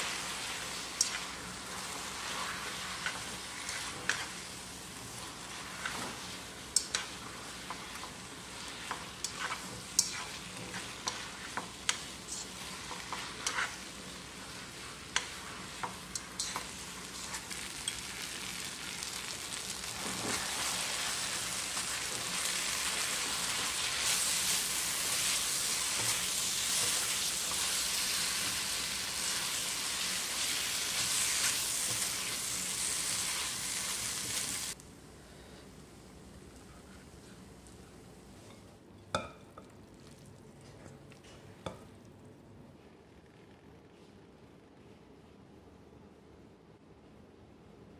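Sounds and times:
food sizzling in a wok: 0.0s - 34.8s.

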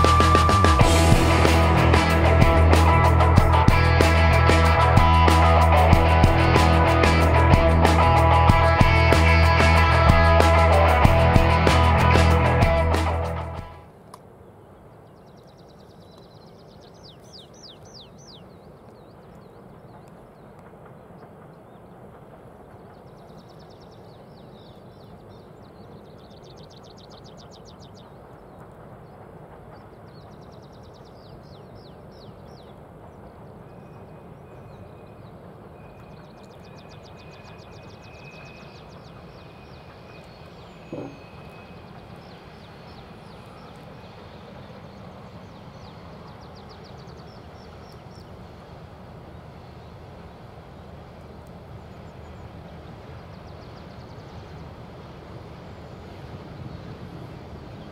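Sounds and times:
thin steady whistle: 0.0s - 1.8s, 33.8s - 44.6s
songbirds trilling: 0.0s - 13.6s, 14.3s - 57.9s.

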